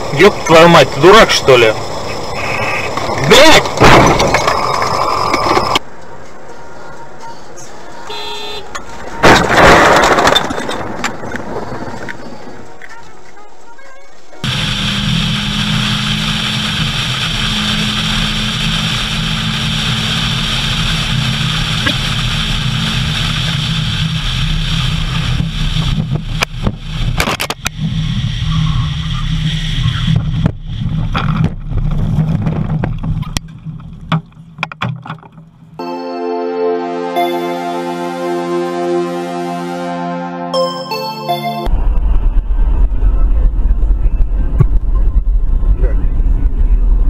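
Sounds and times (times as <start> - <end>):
car engine and road noise: 0.0 - 36.0, 41.6 - 47.0
car crashing knocks and bangs: 9.2 - 11.4.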